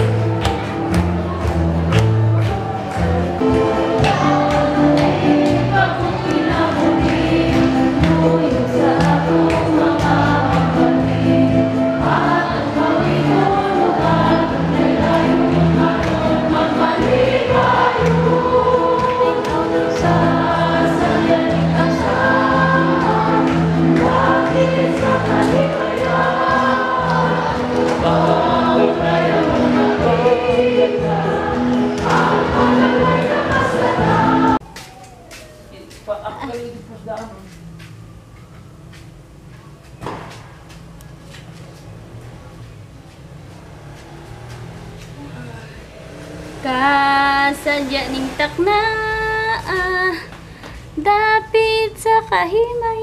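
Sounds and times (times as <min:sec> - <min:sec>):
instrumental accompaniment: 0:00.0 - 0:40.0
choir singing a hymn: 0:03.0 - 0:34.6
repeating bass line: 0:03.0 - 0:34.6.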